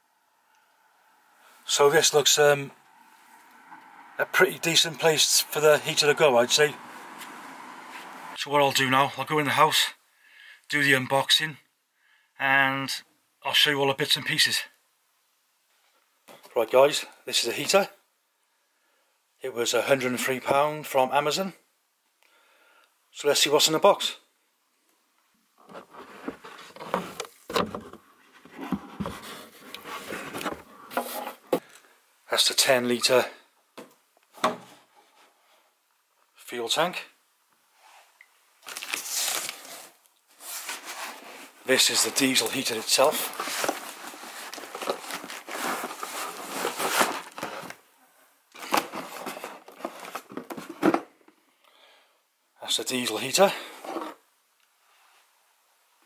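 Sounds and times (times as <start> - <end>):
cardboard rustling and scraping: 25.6 - 31.7, 38.6 - 47.8, 48.5 - 51.1, 53.7 - 54.2.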